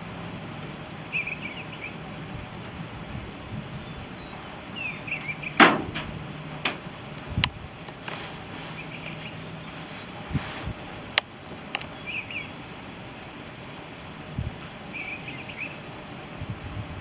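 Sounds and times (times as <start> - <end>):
faint high chirping: 3.8 - 5.6
loud sharp knock: 5.6 - 6.1.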